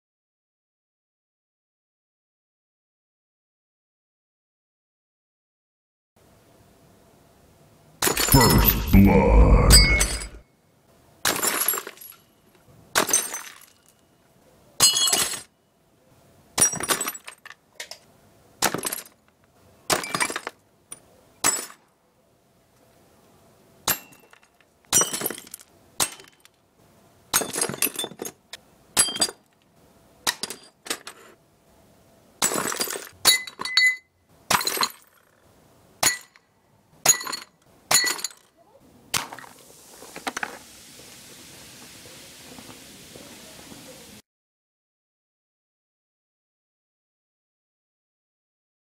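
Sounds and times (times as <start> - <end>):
ceramic clinking and shattering: 11.3 - 12.2, 13.0 - 14.0, 14.8 - 15.5, 23.9 - 26.4, 32.4 - 34.0, 36.0 - 36.4, 37.1 - 38.5.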